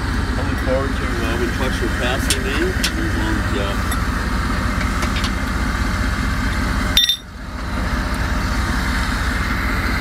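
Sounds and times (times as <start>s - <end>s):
vehicle engine idling: 0.0s - 10.0s
sharp metal clink: 7.0s - 7.3s.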